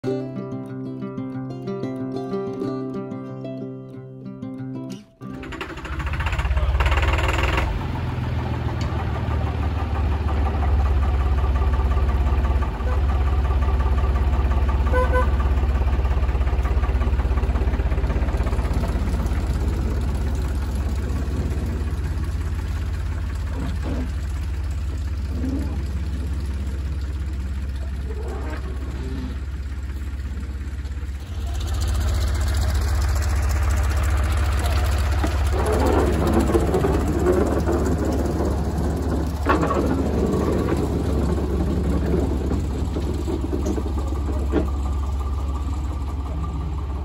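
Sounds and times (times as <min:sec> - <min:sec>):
diesel locomotive engine throbbing: 0:05.3 - 0:47.0.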